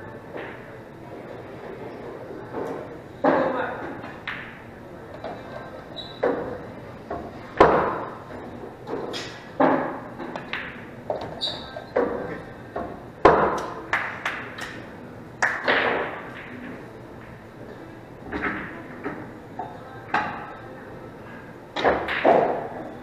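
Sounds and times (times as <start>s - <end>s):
pool balls clacking: 0.0s - 20.8s, 21.7s - 23.0s
balls knocking on table: 6.2s - 8.1s, 8.9s - 11.4s, 12.0s - 14.8s.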